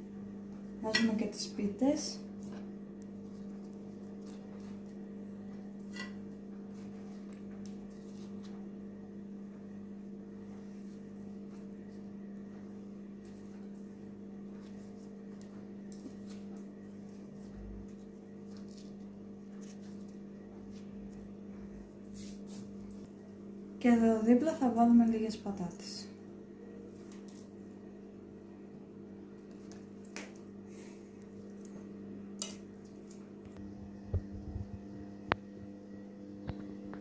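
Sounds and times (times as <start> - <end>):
appliance motor humming: 30.6 - 37.0.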